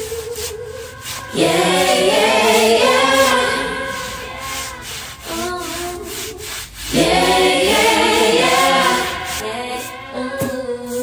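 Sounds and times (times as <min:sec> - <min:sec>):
push broom scrubbing wet concrete: 0:00.0 - 0:11.0
song with sung vocals: 0:00.0 - 0:11.0.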